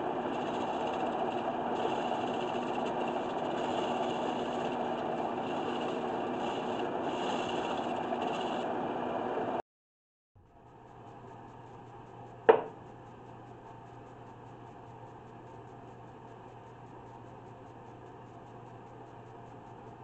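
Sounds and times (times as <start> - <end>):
wood lathe running: 0.0 - 9.6
sharp knock: 12.5 - 12.8.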